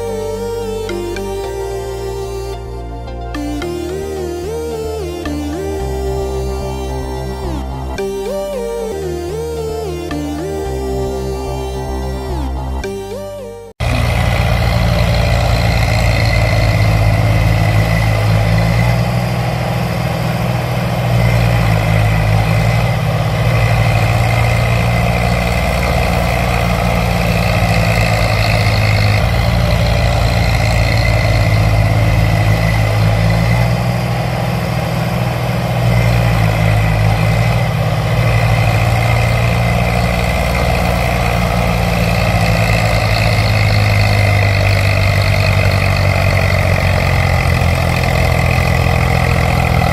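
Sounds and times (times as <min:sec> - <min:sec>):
tractor engine running: 0:00.0 - 0:49.9.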